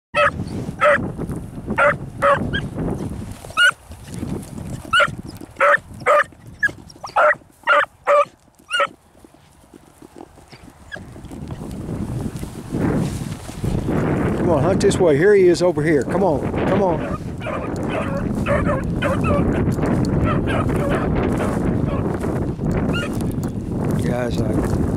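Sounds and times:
dog barking: 0.2 - 1.0, 1.8 - 2.6, 4.9 - 6.3, 7.1 - 8.9, 17.0 - 19.6, 20.2 - 21.1.

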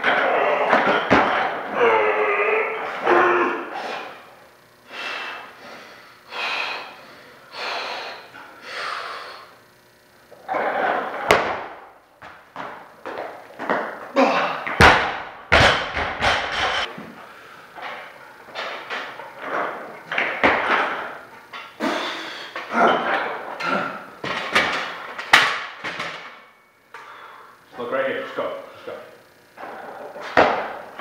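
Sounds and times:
person shouting: 1.7 - 3.8
hard breathing: 3.7 - 9.6, 21.8 - 22.7, 27.0 - 27.6
barbell thudding and bouncing on floor: 11.2 - 11.8, 14.7 - 16.9.

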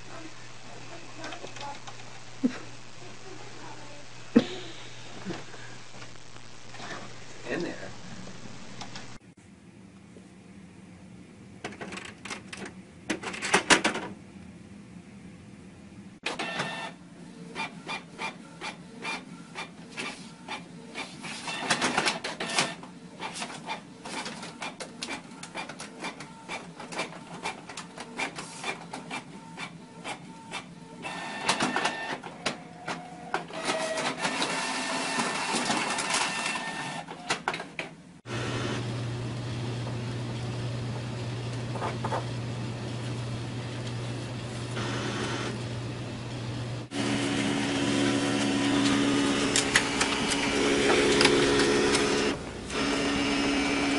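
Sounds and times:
steady low hum: 0.0 - 11.6
printer motor whine: 16.2 - 23.4, 28.9 - 37.5, 38.3 - 53.9
inkjet printer clicking: 48.0 - 53.9.

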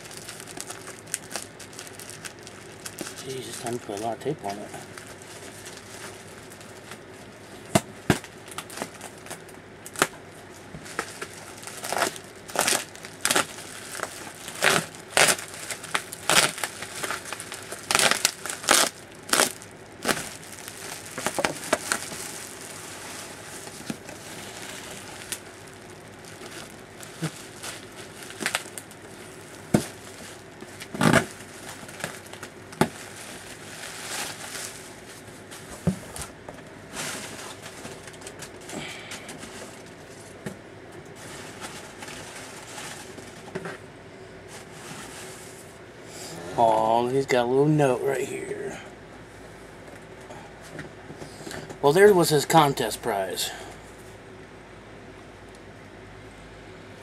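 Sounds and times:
bubble wrap crinkling: 0.0 - 40.5, 41.1 - 43.8, 44.4 - 45.8
packing tape ripping: 7.7 - 10.2, 10.9 - 35.2.

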